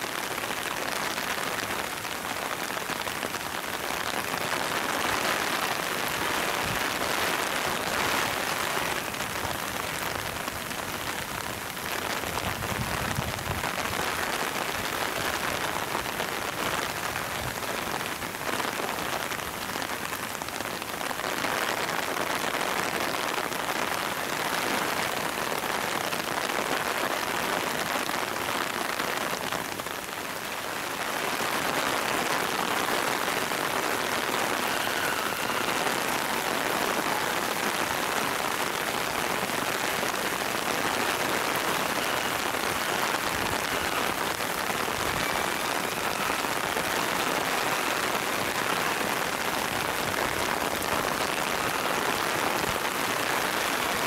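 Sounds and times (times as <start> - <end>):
steady rain pouring: 0.0 - 54.0.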